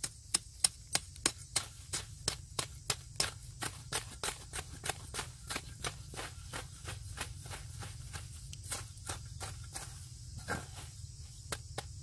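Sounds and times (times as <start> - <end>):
knife chopping into soil: 0.0 - 12.0.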